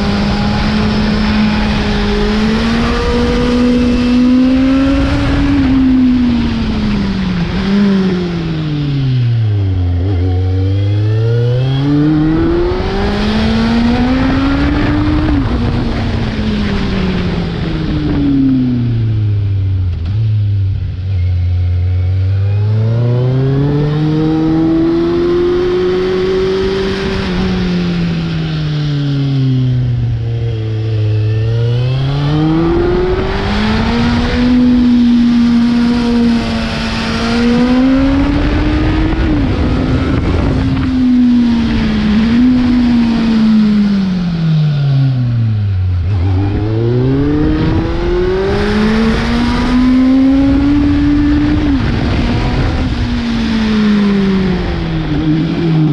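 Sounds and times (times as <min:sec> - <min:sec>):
motorcycle engine revving: 0:00.0 - 0:55.9.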